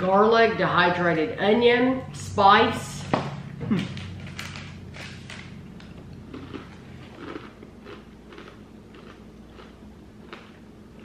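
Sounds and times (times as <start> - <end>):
chewing crunchy snack bars: 3.8 - 11.0.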